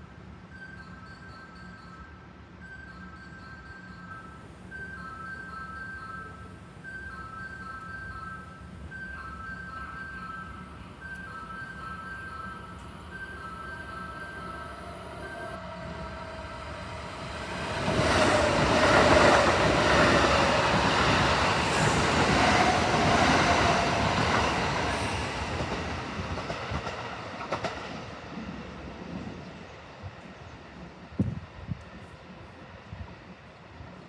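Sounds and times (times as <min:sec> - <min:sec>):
electric train passing: 0:00.2 - 0:34.0
wheels clattering on rails: 0:17.5 - 0:28.2.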